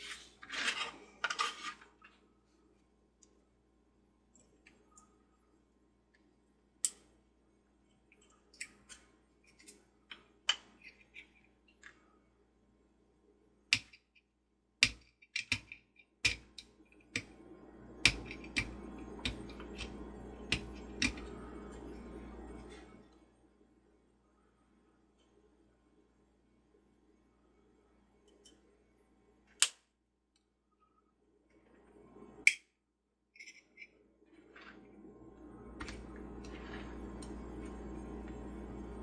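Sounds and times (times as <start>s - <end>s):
steady low hum: 16.3s - 29.5s, 33.4s - 39.0s.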